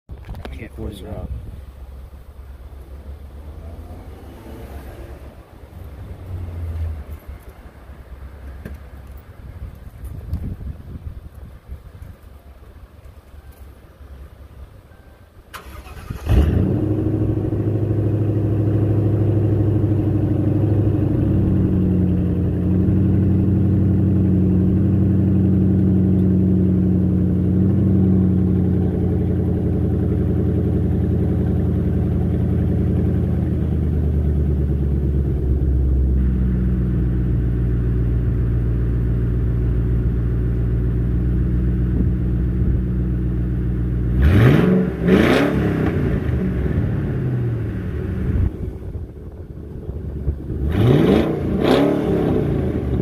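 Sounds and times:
car engine starting and idling: 0.1s - 10.3s, 11.8s - 53.0s.

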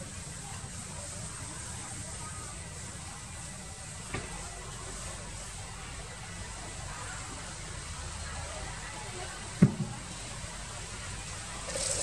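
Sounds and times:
outdoor background hiss: 0.0s - 12.0s
faint knock: 9.6s - 10.0s
sharp thump: 9.6s - 10.0s.

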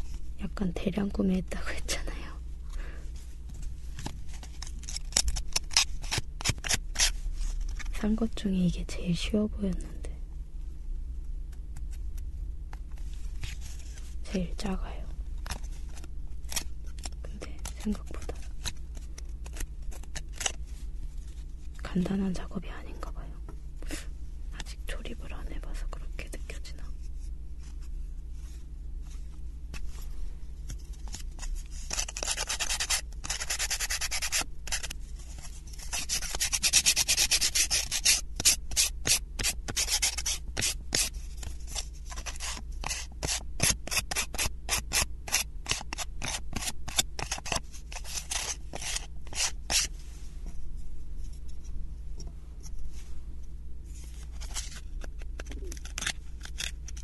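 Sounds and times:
sandpaper rasping on wood: 31.9s - 34.8s, 35.9s - 41.1s, 42.3s - 49.9s.

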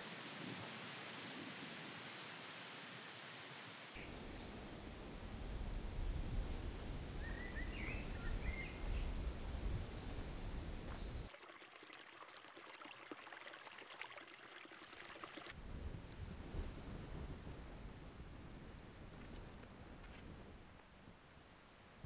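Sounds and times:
bird chirps: 14.9s - 16.3s.

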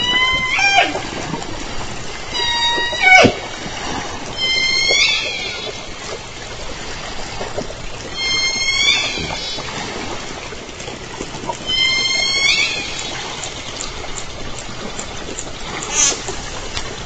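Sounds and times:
killer whale pulsed call: 0.0s - 10.5s, 11.2s - 14.3s
underwater hiss: 15.7s - 17.0s.

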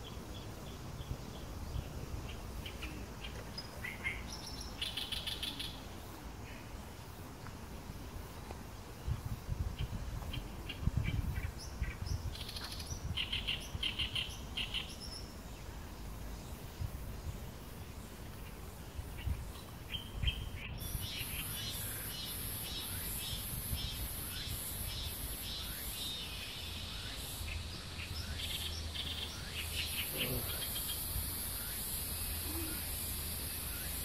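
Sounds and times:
low wind rumble on microphone: 0.0s - 4.8s, 7.7s - 21.6s
birds chirping: 0.0s - 34.0s
high steady insect buzz: 11.6s - 34.0s.

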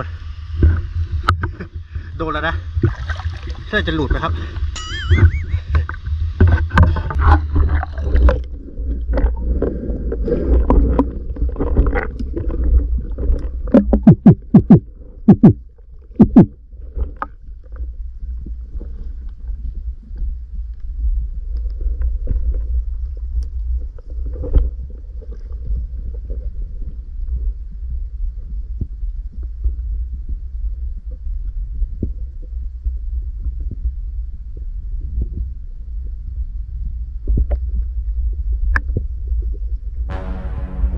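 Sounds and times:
low underwater rumble: 0.0s - 40.9s
water splashing: 1.4s - 16.5s
sharp knocks: 13.7s - 15.6s.

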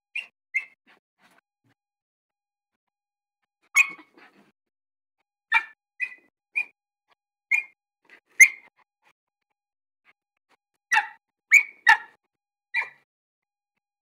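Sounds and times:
puppy whimpering: 3.8s - 4.1s.

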